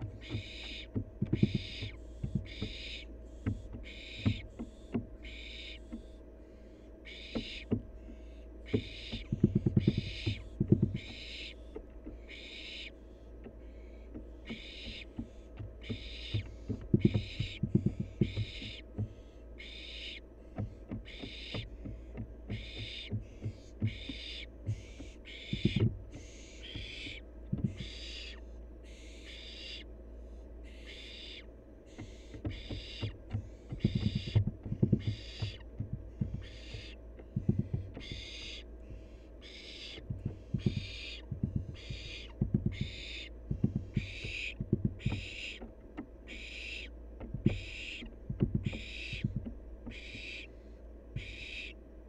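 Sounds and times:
knocks against wooden nest box: 0.0s - 6.2s, 7.1s - 28.4s, 31.9s - 50.4s, 51.2s - 51.7s
owl chick hissing: 5.2s - 7.7s, 38.0s - 41.2s, 49.9s - 51.8s.

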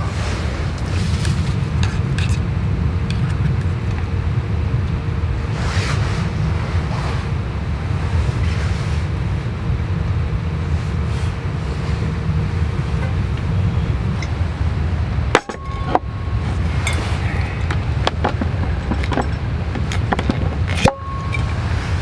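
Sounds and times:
wind rumbling on microphone: 0.0s - 22.0s.

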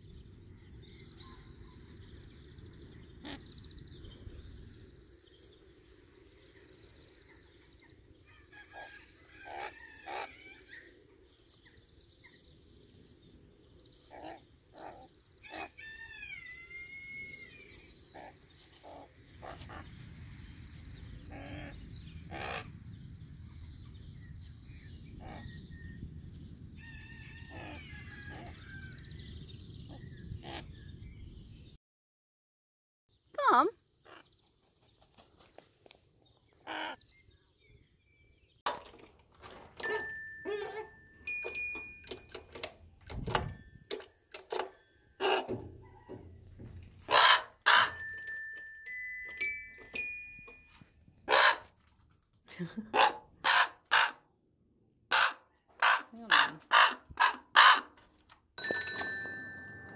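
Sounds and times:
raven calling: 21.3s - 22.7s, 36.6s - 37.0s, 47.1s - 48.0s, 51.3s - 51.7s, 53.0s - 54.2s, 55.1s - 58.0s.

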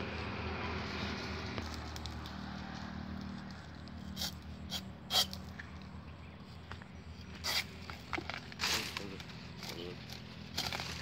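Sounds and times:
sickle blade cutting fibres: 3.1s - 5.6s, 7.3s - 11.0s.

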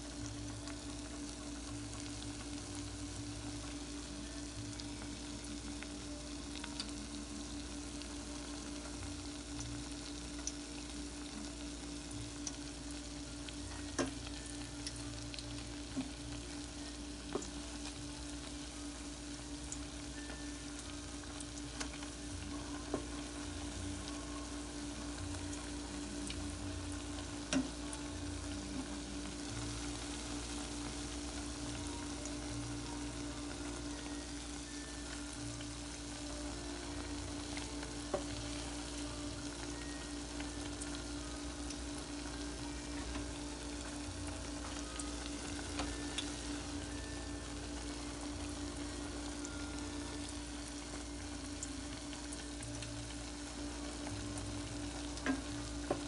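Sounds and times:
food sizzling in hot oil: 0.0s - 56.0s
low steady hum: 0.0s - 56.0s
oil popping: 37.3s - 39.0s, 54.0s - 56.0s.

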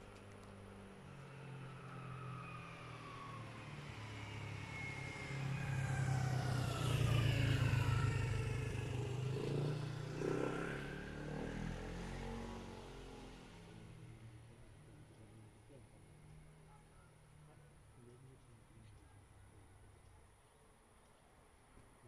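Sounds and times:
motor vehicle passing by: 1.0s - 14.2s.

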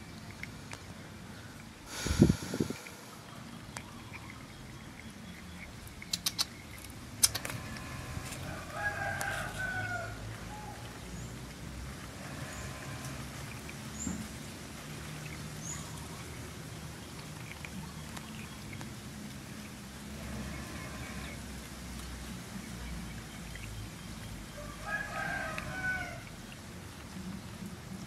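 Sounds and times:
sharp clicks: 6.0s - 7.6s
rooster crowing: 8.5s - 10.2s, 24.6s - 26.2s.

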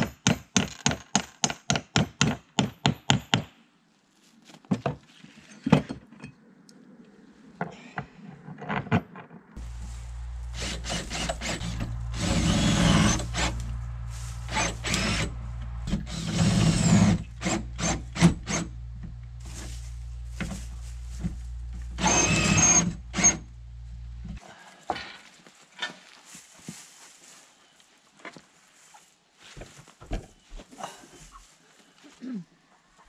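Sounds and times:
power tool running: 9.6s - 19.6s, 21.7s - 23.5s
steady low hum: 9.6s - 24.4s.

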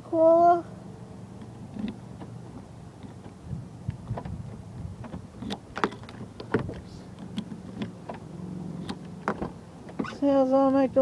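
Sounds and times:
steady low hum: 0.0s - 11.0s
car door handle clicking: 1.8s - 10.2s.

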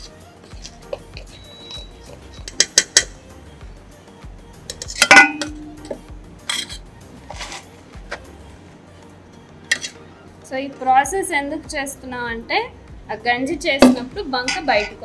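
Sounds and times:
metal pots clinking: 1.4s - 3.1s, 4.7s - 7.7s, 9.7s - 10.0s, 13.8s - 15.0s
loud metallic clang: 5.0s - 5.9s.

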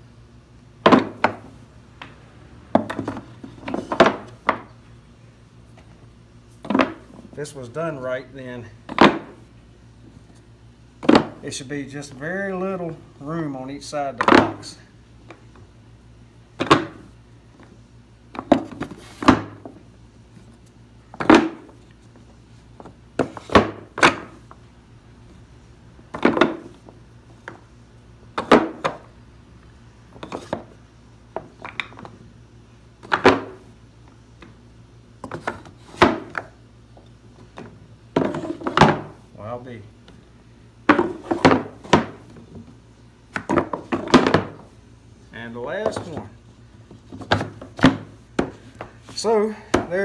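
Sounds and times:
wooden blocks knocking: 14.2s - 14.6s, 16.6s - 17.1s, 21.2s - 21.8s, 26.1s - 27.6s, 28.3s - 29.1s, 30.2s - 32.2s, 33.0s - 33.6s, 35.2s - 36.5s, 37.6s - 39.2s, 40.9s - 42.5s, 43.3s - 44.6s, 49.7s - 50.0s.

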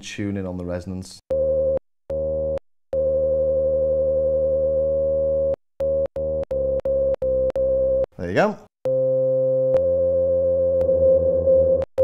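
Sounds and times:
resonant synthesizer note: 8.9s - 12.0s.

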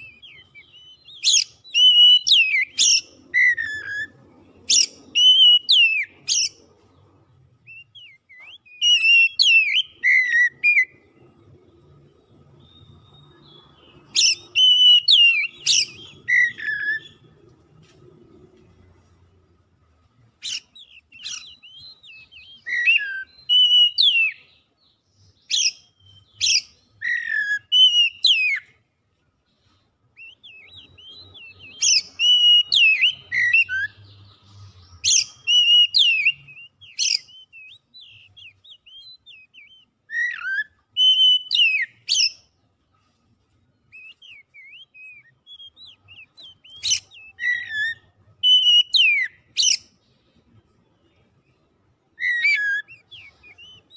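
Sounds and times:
bird singing whistled phrases: 0.0s - 6.6s, 7.6s - 11.0s, 12.5s - 17.3s, 20.4s - 24.6s, 25.2s - 28.8s, 30.2s - 34.3s, 34.9s - 42.4s, 43.9s - 49.9s, 52.2s - 53.9s.

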